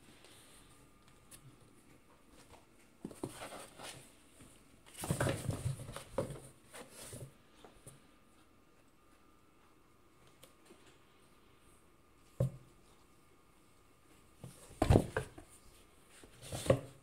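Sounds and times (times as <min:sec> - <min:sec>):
cats scrambling in cardboard box: 0:04.8 - 0:07.4.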